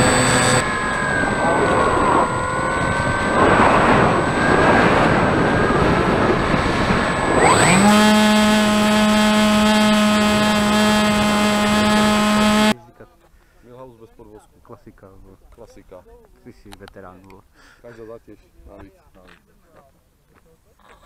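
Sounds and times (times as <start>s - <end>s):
model plane motor droning: 0.0s - 12.8s
rush of air: 0.6s - 7.5s.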